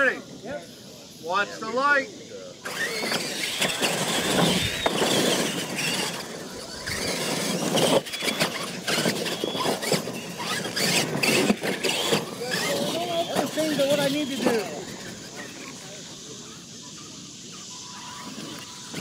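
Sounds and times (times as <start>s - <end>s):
electric motors whining: 0.0s - 19.0s
tyres crunching on dirt: 2.8s - 15.6s.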